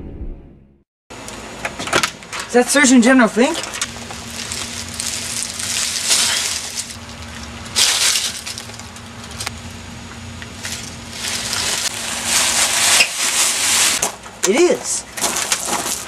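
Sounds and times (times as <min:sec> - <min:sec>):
faint steady hum: 0:01.2 - 0:16.0
dry leaves crunching and rustling: 0:03.4 - 0:14.0, 0:15.2 - 0:16.0.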